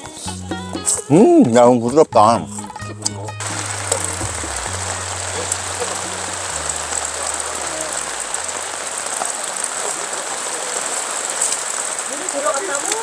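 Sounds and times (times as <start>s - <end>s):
low background music: 0.0s - 9.3s
rain on a tarp: 3.4s - 13.0s.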